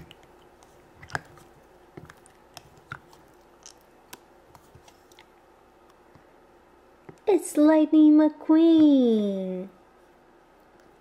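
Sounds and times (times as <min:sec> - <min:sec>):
slime squelching: 0:00.0 - 0:06.1.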